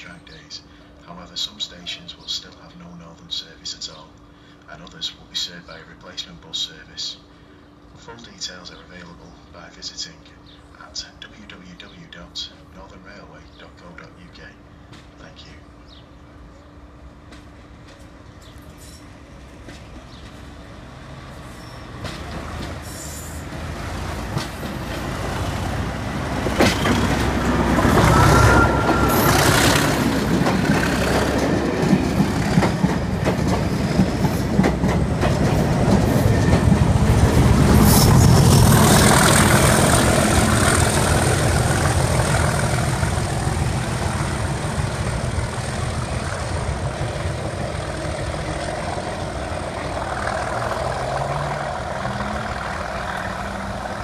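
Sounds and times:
diesel locomotive engine: 0.0s - 54.0s
coaches clattering over rail joints: 21.6s - 54.0s.

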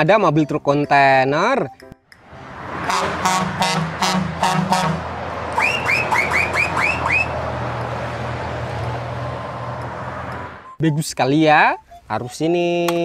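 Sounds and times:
road noise: 0.3s - 10.8s
truck engine drone: 2.1s - 10.8s
quick rising chirps: 5.3s - 10.8s.

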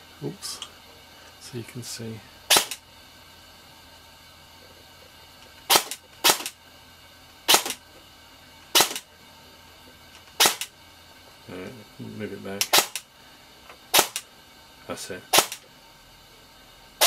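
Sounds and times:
airsoft gun shots: 2.5s - 2.8s, 5.7s - 6.6s, 7.5s - 7.8s, 8.7s - 9.1s, 10.4s - 10.7s, 12.7s - 13.0s, 13.9s - 14.2s, 15.3s - 15.6s.

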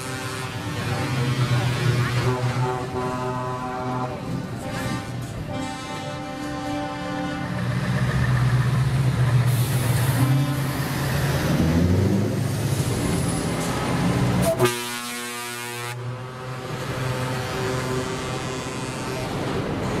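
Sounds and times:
heavy truck diesel engines: 0.0s - 20.0s.

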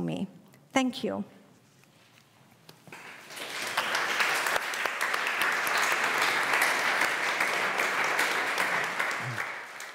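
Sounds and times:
audience applauding: 2.9s - 9.9s.

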